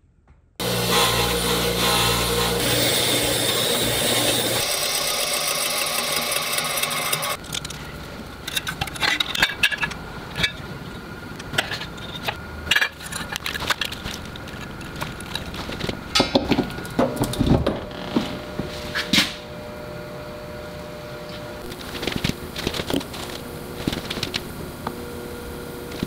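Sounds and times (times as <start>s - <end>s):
bench grinder wire wheel: 0.6s - 10.0s.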